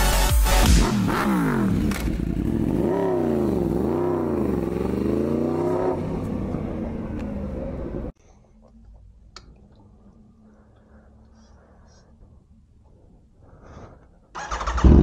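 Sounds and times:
motorcycle engine revving: 0.6s - 8.1s.

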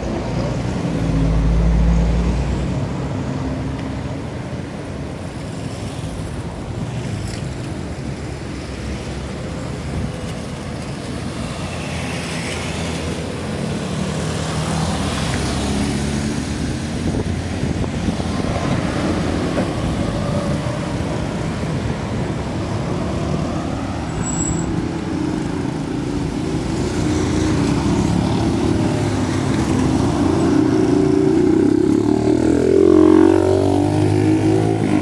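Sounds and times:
motorcycle passing: 26.4s - 35.0s.

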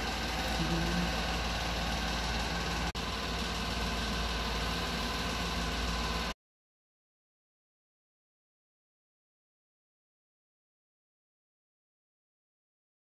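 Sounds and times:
machine hum with low rumble: 0.0s - 6.4s.

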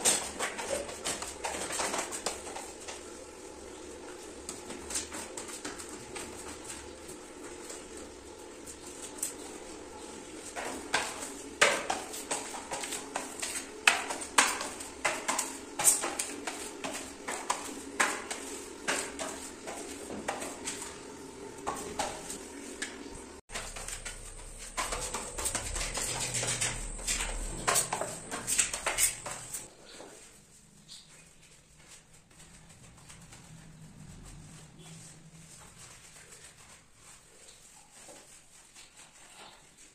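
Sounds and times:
scraper scraping on tiles: 23.6s - 29.7s.

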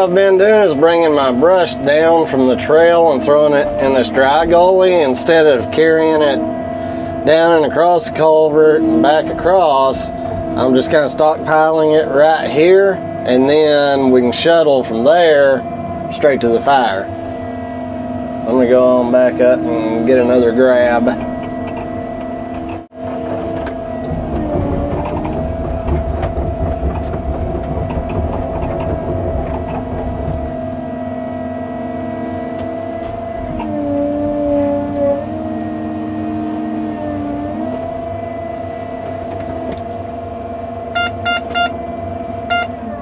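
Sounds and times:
excavator diesel engine running: 0.0s - 43.0s
short beeps: 40.9s - 41.8s, 42.5s - 42.8s.

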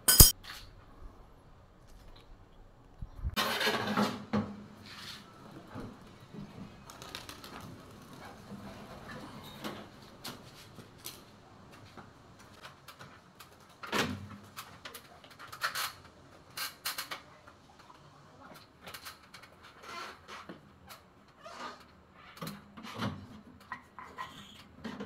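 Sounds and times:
clicks and knocks of tool work: 0.0s - 0.3s.

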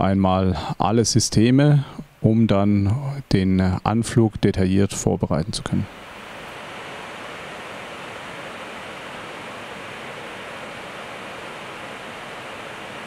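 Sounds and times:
air-conditioning hiss: 0.0s - 13.0s
airflow rushing over windscreen: 5.9s - 13.0s.

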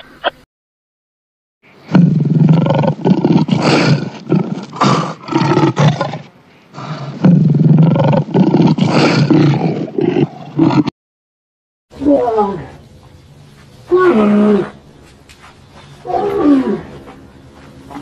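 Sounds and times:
lion roaring: 1.9s - 10.9s, 13.9s - 14.8s, 16.0s - 17.0s.

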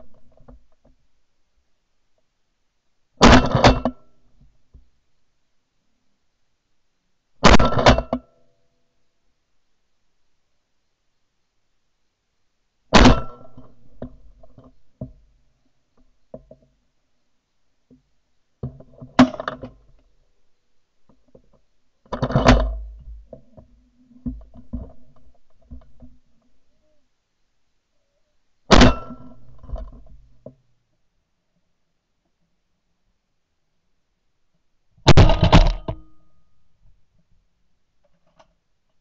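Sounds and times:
shotgun shots: 13.0s - 13.4s, 35.1s - 35.9s
clicks and knocks of gun: 35.1s - 36.2s.

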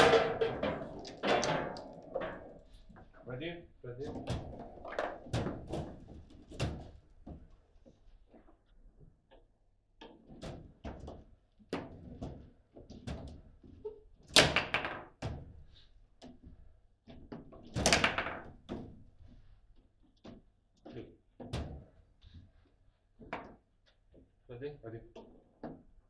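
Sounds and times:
rods banging against table: 0.0s - 2.9s
table football plastic knocks: 17.8s - 18.6s.

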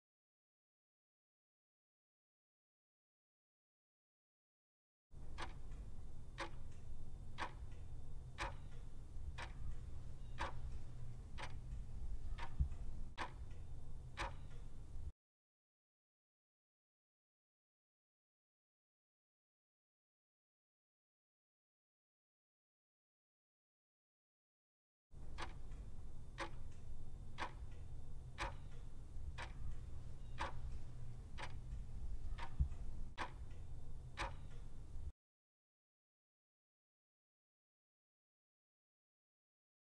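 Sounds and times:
clock ticking: 5.2s - 15.1s, 25.2s - 35.1s
low steady hum: 5.2s - 15.1s, 25.2s - 35.1s.

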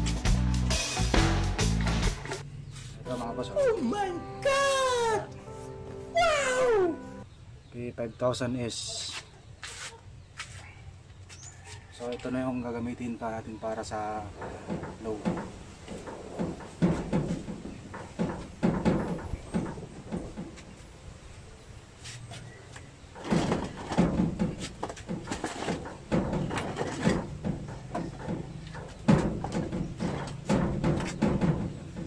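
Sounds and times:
bumps and knocks on equipment: 14.4s - 20.7s, 23.2s - 32.0s.

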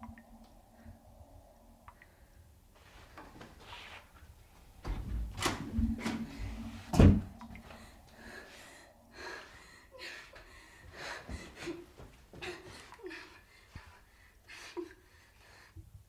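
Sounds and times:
woman breathing hard: 7.6s - 16.0s.

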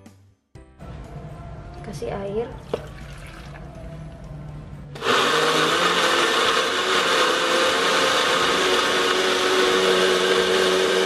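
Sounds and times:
blender grinding: 5.0s - 11.0s.

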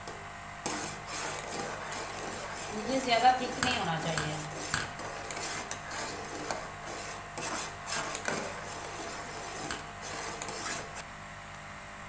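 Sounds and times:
steady low hum: 0.0s - 12.0s
metal spoon scraping pot: 0.6s - 11.0s.

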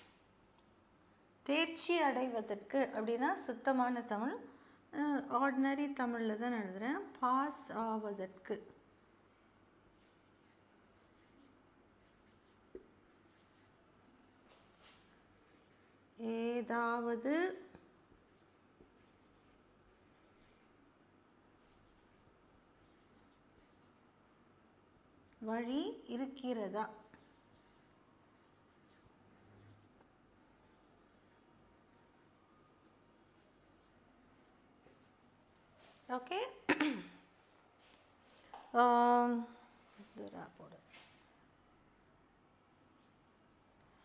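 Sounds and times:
marker squeaking on whiteboard: 10.0s - 13.7s, 14.8s - 15.9s, 17.5s - 20.7s, 27.0s - 35.1s.

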